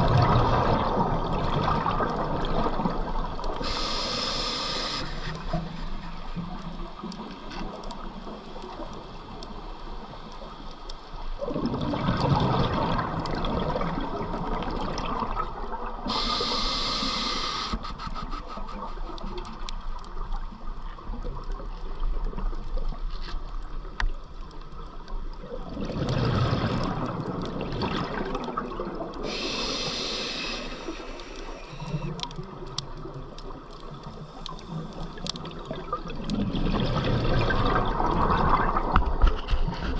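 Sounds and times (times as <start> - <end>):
bubbles rushing and gurgling: 0.0 - 9.5, 11.2 - 23.0, 24.9 - 39.9
hissing inhale through regulator: 3.5 - 6.1, 16.0 - 19.4, 29.2 - 32.3.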